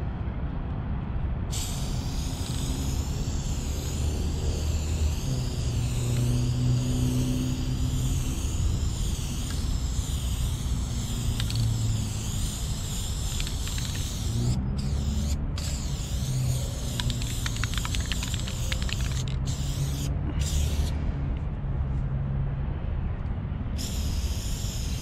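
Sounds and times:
spray paint can hissing: 1.5 - 20.9, 23.8 - 25.0.

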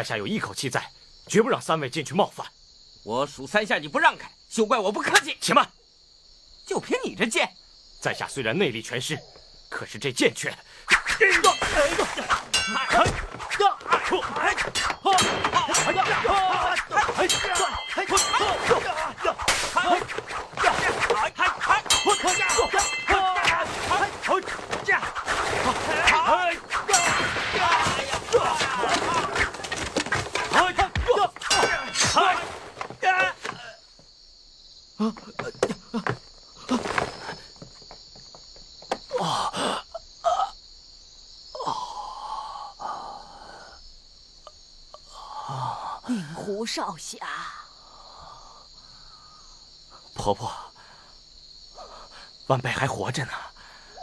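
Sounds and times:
crickets chirping: 0.0 - 54.0
fighters shouting and grunting: 10.9 - 33.9
swords clanging: 11.3 - 33.6.

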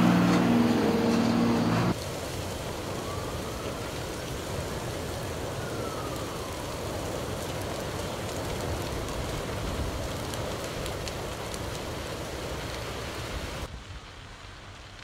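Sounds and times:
faint siren wailing: 0.0 - 9.5
fire crackling and hissing: 0.0 - 15.0
fire popping: 0.0 - 15.0.

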